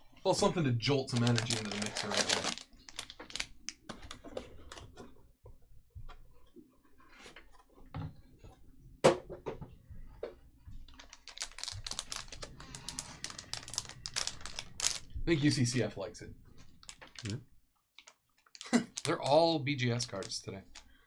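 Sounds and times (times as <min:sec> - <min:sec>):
foil wrapper crinkling: 0:01.1 - 0:03.5, 0:11.0 - 0:15.1.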